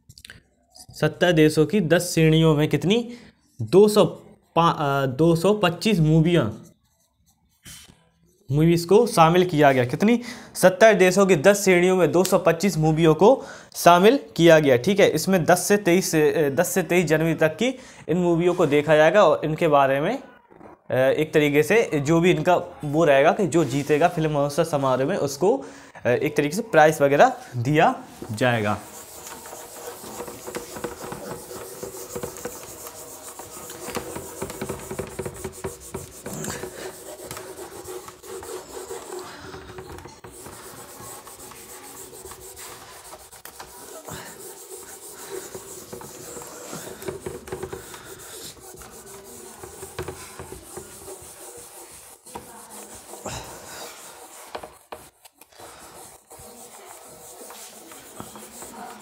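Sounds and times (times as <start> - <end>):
eraser rubbing whiteboard: 5.4 - 8.6, 28.0 - 59.0.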